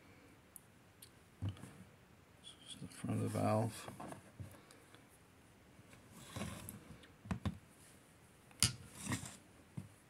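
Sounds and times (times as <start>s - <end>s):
soft rustle: 2.8s - 7.1s, 7.7s - 10.0s.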